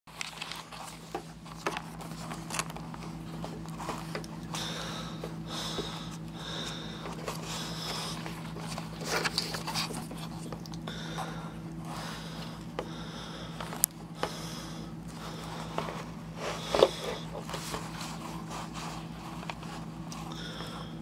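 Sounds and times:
clicks and rustling from handling: 0:00.1 - 0:04.6
steady electrical hum: 0:00.1 - 0:21.0.

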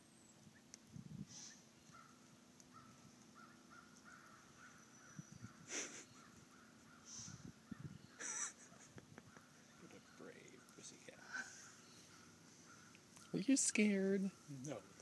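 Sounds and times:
distant bird calling: 0:00.0 - 0:15.0
short hissing puff: 0:01.2 - 0:01.7, 0:07.0 - 0:07.5.

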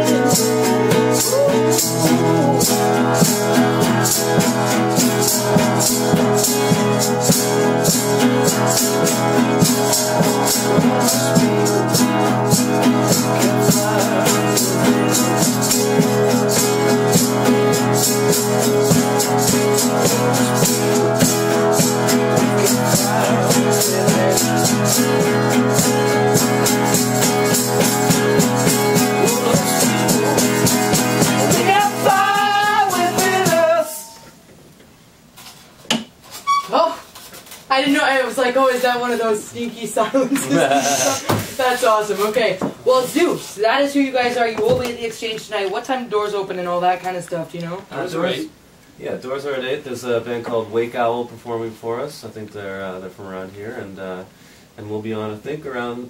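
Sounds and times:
maraca shaking: 0:00.0 - 0:34.2
acoustic guitar strumming: 0:00.0 - 0:34.3
electric guitar: 0:00.0 - 0:34.4.

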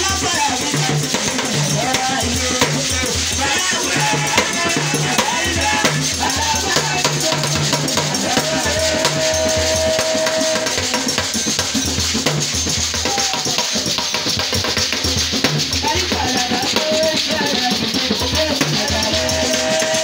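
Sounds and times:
shekere rattle shaken: 0:00.0 - 0:20.0
person singing: 0:00.1 - 0:11.2, 0:15.8 - 0:20.0.

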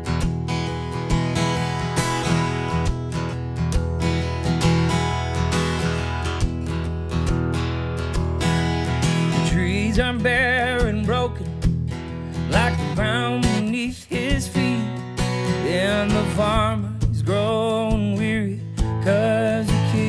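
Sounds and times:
strummed acoustic guitar: 0:00.0 - 0:20.0
man singing country song: 0:09.0 - 0:20.0.

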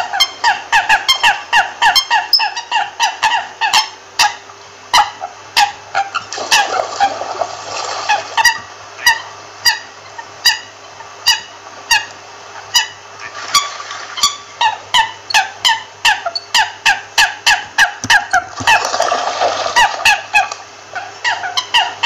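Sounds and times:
coot calling: 0:08.1 - 0:18.9, 0:19.7 - 0:22.0.

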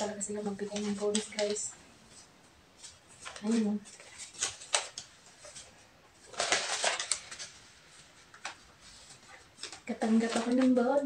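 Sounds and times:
banknotes rustling being counted: 0:00.0 - 0:11.0
paper snapping: 0:00.7 - 0:01.6, 0:04.2 - 0:05.1, 0:06.3 - 0:07.5.

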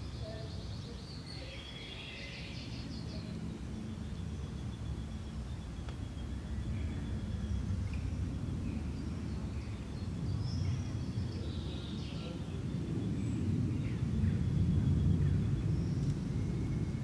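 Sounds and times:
faint high bird chirps: 0:00.0 - 0:12.4
low rumble: 0:01.9 - 0:17.0.

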